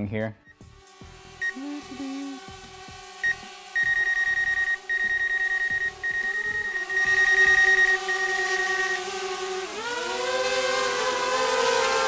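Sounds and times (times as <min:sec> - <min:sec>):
drone propeller hum: 0:00.6 - 0:12.0
rapid high-pitched beeping: 0:03.2 - 0:09.2.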